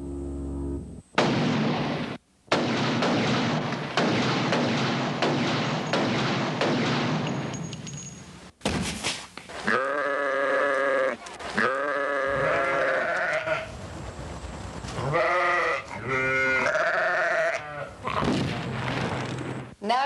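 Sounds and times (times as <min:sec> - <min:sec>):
rapid gunfire: 0:01.2 - 0:07.4
animal bleating: 0:09.6 - 0:13.7, 0:15.0 - 0:18.2.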